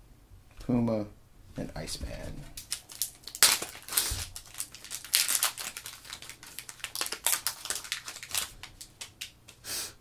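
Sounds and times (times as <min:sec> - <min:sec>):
foil wrapper tearing and crinkling: 0:02.6 - 0:09.4.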